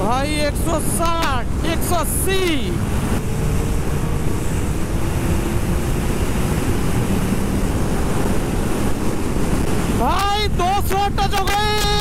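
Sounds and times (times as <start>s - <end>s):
heavy wind rush on microphone: 0.0s - 12.0s
faint motorcycle engine: 1.2s - 10.4s.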